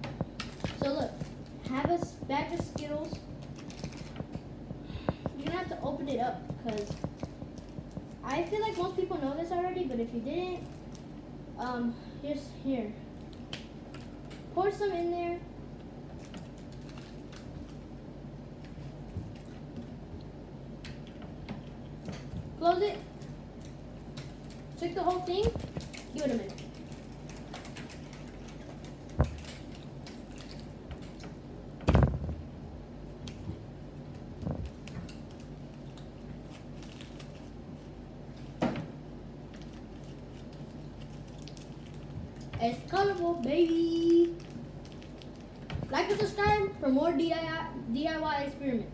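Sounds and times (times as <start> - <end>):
steady low hum: 0.0 - 48.9
wrapper and bottle crinkling: 39.6 - 45.7.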